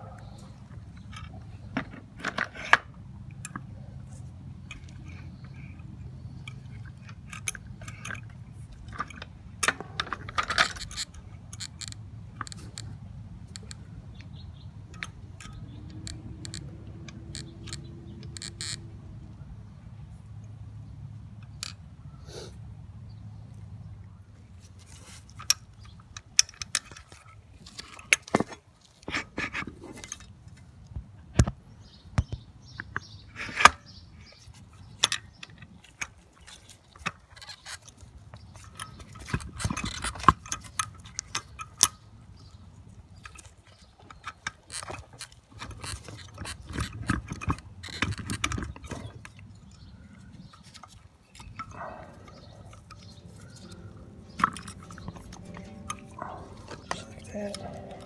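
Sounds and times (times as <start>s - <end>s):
sharp clicks: 30.8s - 58.0s
metallic clinks and jangling: 45.6s - 58.0s.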